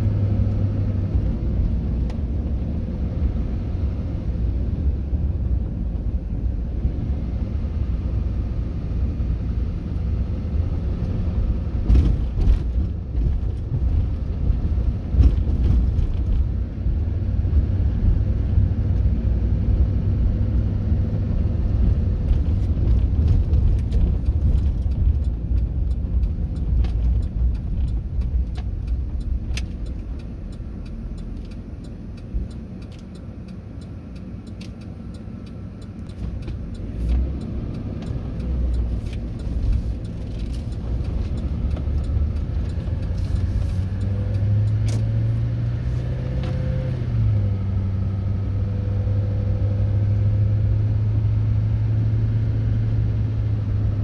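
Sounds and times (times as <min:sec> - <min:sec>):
car engine: 0:00.0 - 0:54.0.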